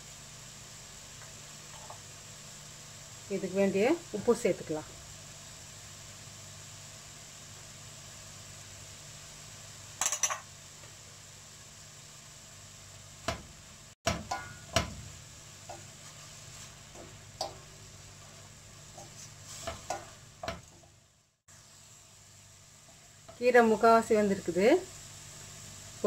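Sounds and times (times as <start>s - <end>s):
spatula stirring greens in pot: 14.1s - 21.0s.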